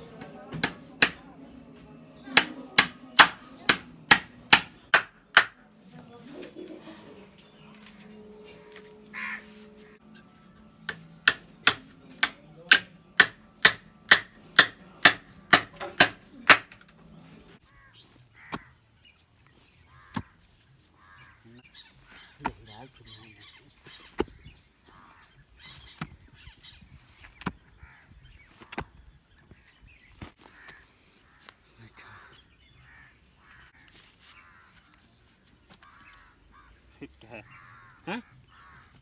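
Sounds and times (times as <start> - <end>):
high insect whine: 0.0 - 17.6
hammer driving nails: 10.9 - 16.9.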